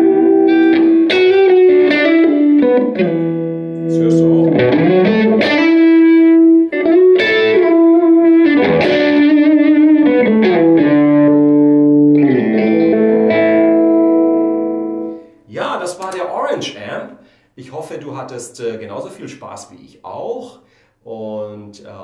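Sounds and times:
overdriven electric guitar lead: 0.0s - 15.3s.

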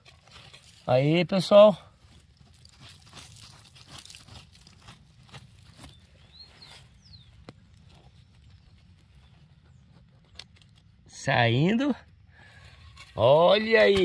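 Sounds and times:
metal tool scraping dry soil: 0.0s - 6.0s, 12.4s - 14.0s
falling dirt patter: 2.1s - 6.0s.

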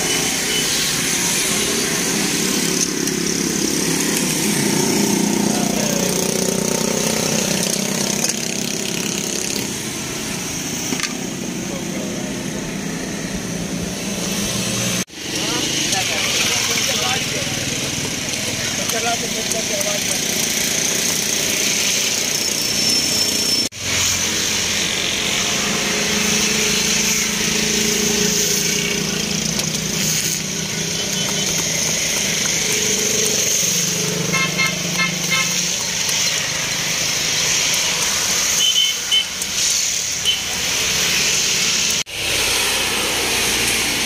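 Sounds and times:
street traffic noise: 0.0s - 44.0s
vehicle horn short toots: 34.3s - 35.6s, 38.6s - 39.3s.

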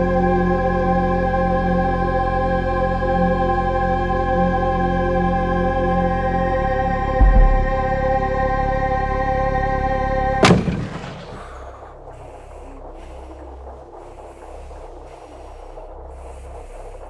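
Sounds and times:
chord-like film score: 0.0s - 17.0s
low rumble: 6.6s - 8.9s, 10.3s - 17.0s
booming impact: 7.2s - 8.1s, 10.4s - 13.4s
soft hissing swells: 10.9s - 17.0s.

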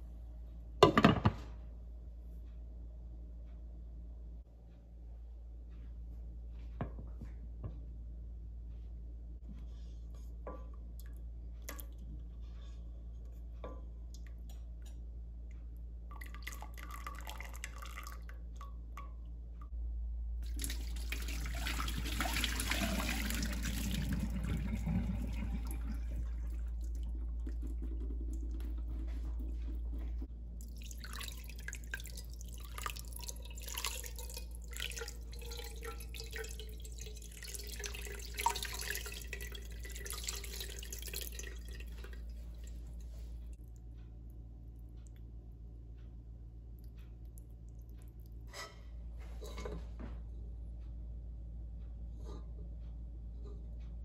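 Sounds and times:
steady low hum: 0.0s - 54.0s
water trickling and dripping: 15.7s - 19.8s, 20.4s - 43.9s
water rushing into a sink: 20.5s - 42.2s.

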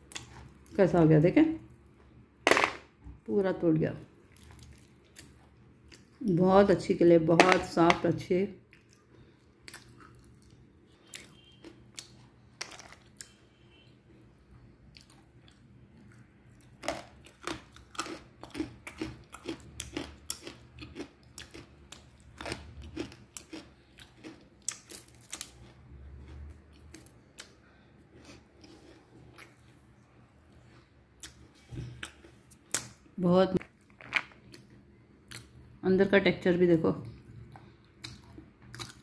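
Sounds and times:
crisp chewing crunches: 8.7s - 13.4s, 14.9s - 29.8s.

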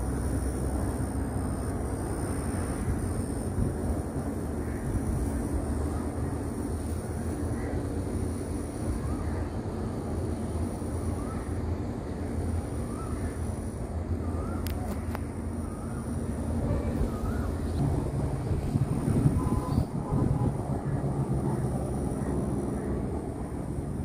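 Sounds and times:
faint high whine: 0.0s - 24.0s.

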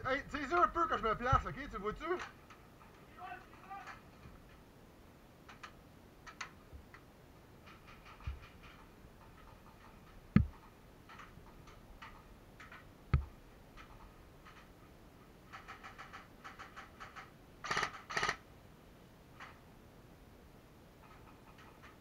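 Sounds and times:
sharp low knocks: 9.8s - 10.7s.

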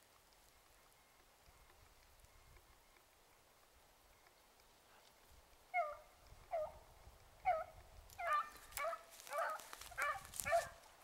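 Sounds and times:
beagle baying: 5.7s - 6.8s, 7.4s - 10.8s.

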